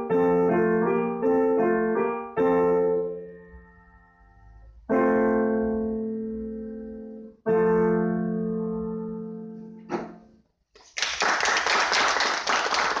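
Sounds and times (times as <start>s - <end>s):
audience applauding: 10.8s - 13.0s.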